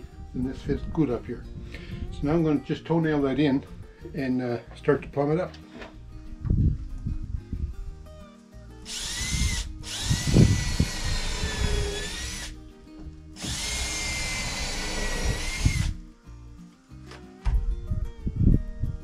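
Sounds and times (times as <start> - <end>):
cordless drill motor whining: 8.9 - 12.6, 13.4 - 16.0.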